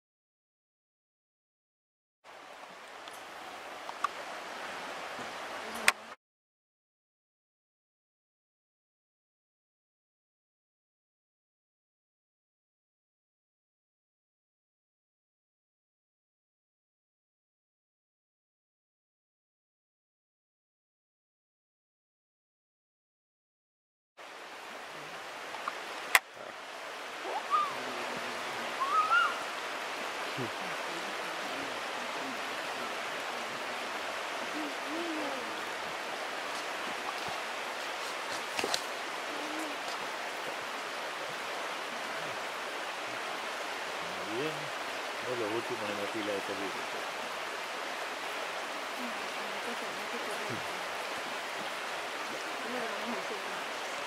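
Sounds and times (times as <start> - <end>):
river water rushing: 2.3 - 6.2, 24.2 - 54.0.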